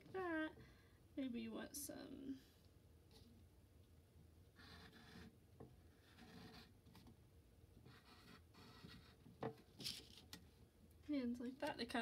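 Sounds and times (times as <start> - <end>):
pencil scratching on paper: 4.6 - 5.3, 5.9 - 6.8, 7.8 - 9.3.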